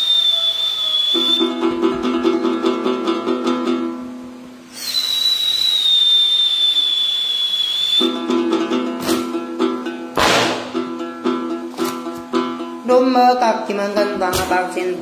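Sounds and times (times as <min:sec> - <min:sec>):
high whistling tone: 0:00.0 - 0:01.8, 0:04.7 - 0:08.4
lute being plucked: 0:01.4 - 0:04.3, 0:08.0 - 0:13.1.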